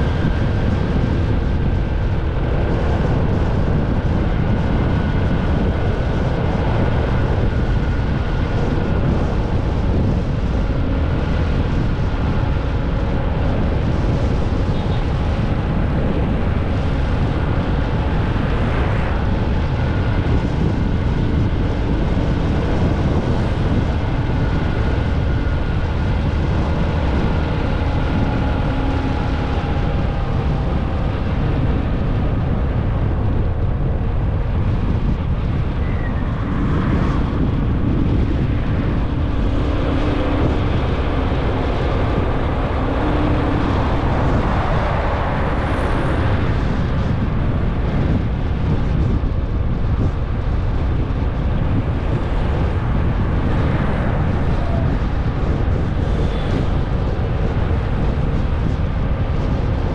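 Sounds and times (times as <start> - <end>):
wind rushing over microphone: 0.0 - 59.9
motorcycle engine running: 36.5 - 53.5.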